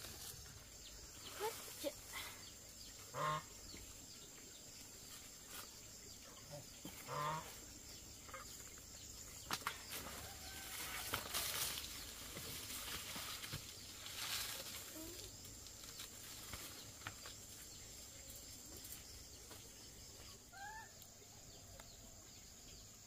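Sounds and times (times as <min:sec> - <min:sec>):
geese honking: 0:03.1 - 0:03.5, 0:07.1 - 0:07.5
rustling: 0:09.5 - 0:17.7.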